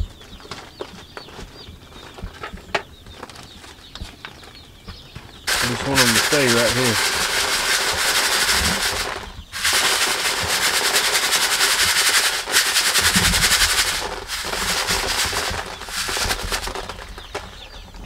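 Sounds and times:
grains pouring onto plastic: 5.5s - 17.5s.

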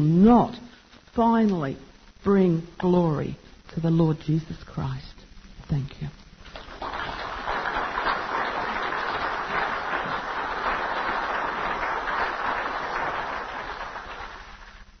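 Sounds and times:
audience applauding: 6.5s - 15.0s.

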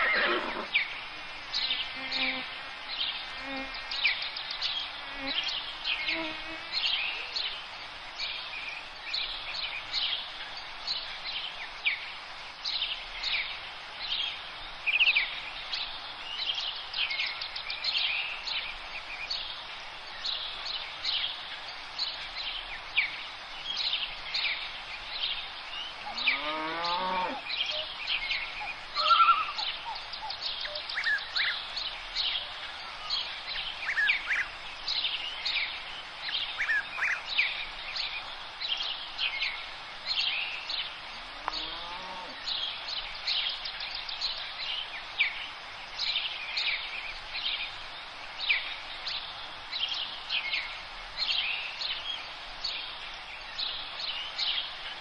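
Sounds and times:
songbirds chirping and trilling: 0.0s - 55.0s
bird call falling in pitch: 29.0s - 29.6s.

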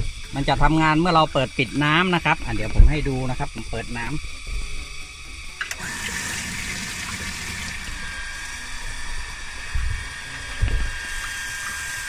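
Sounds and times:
water pump whining: 0.0s - 12.0s
water flowing from tap: 5.6s - 8.9s
dull low thumps: 9.7s - 11.0s.

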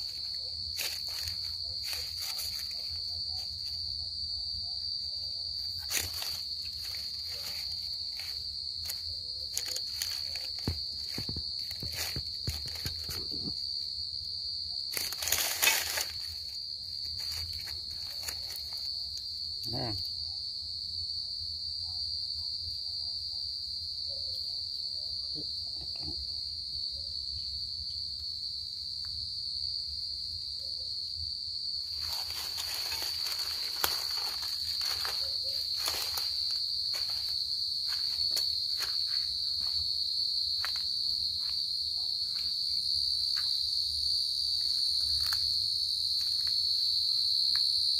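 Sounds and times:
rustling through dry leaves: 0.0s - 3.7s, 5.8s - 13.3s, 14.9s - 18.8s, 31.9s - 38.9s
cricket trilling: 0.0s - 47.9s.

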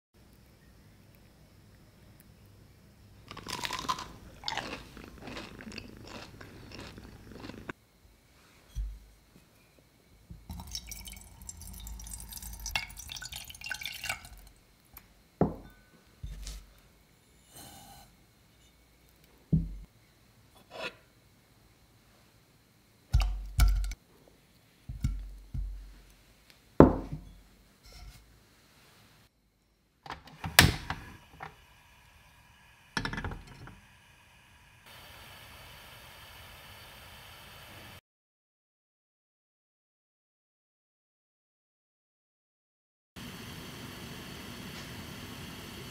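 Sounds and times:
crunchy food being chewed: 3.2s - 7.8s.

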